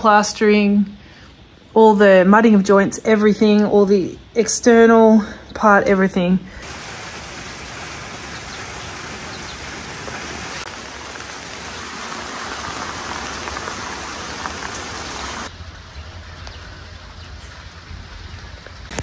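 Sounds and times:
steady rain hiss: 6.5 - 19.0.

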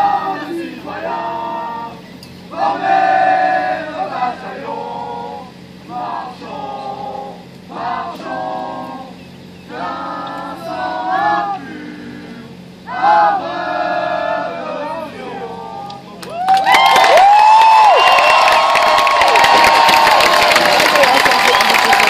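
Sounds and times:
group singing in unison: 0.0 - 16.0.

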